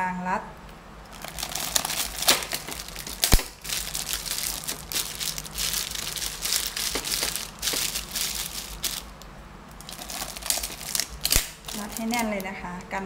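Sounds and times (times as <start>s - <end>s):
plastic bag crinkling: 1.1s - 12.5s.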